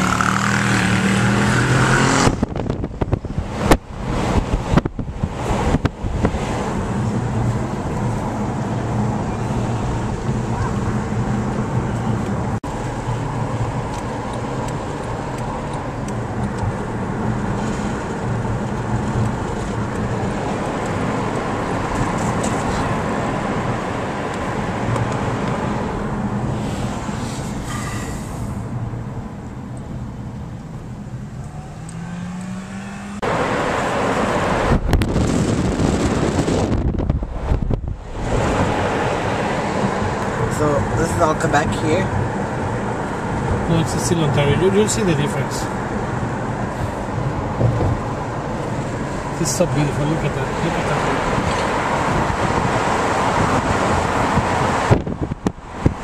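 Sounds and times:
car engine: 0.0 - 56.0
tyre and road noise: 0.0 - 56.0
wind noise: 1.2 - 12.6, 33.0 - 41.0, 50.2 - 56.0.

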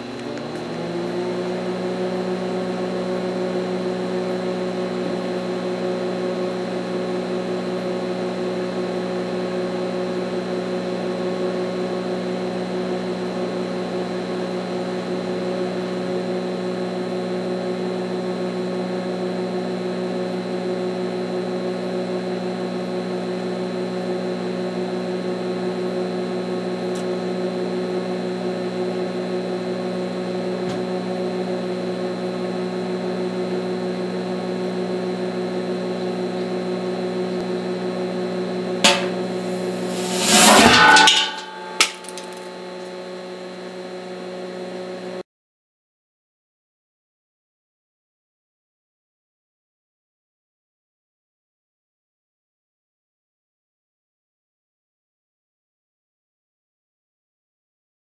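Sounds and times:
arc welder electrical hum: 0.0 - 45.2
sharp pop: 38.8 - 42.7.

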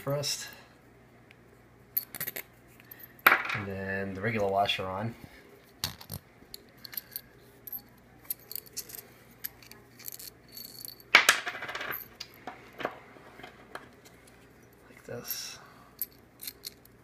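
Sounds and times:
bolts and washers clinking: 2.0 - 2.5, 5.8 - 17.0
metal hardware jingling rattle: 5.9 - 11.2, 14.6 - 17.0.

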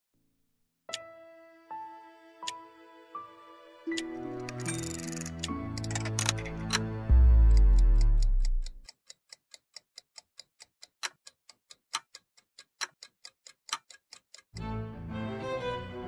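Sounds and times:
music with strings: 0.9 - 8.6, 14.6 - 16.0
mechanical watch ticking: 4.0 - 14.6.

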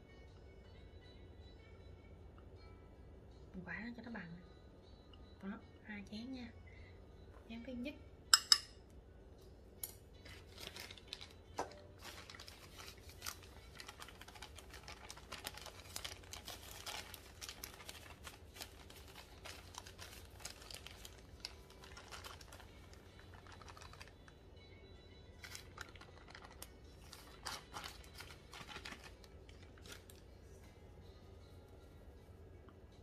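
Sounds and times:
ceramic bowl knocking steel bowl: 8.3 - 8.8
plastic bag crinkling: 10.2 - 24.3, 25.4 - 30.2.

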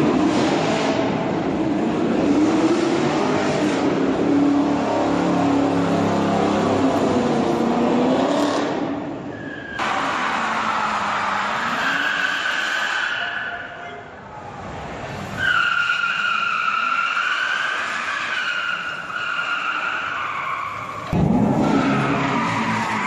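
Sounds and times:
car engine at high revs: 0.0 - 9.1
high tyre squeal: 9.2 - 14.5, 15.3 - 23.0
tyres spinning on pavement: 15.3 - 23.0.

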